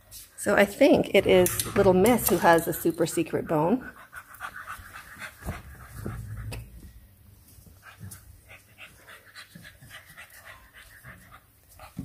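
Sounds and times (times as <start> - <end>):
dog panting: 3.1 - 6.9, 7.6 - 12.0.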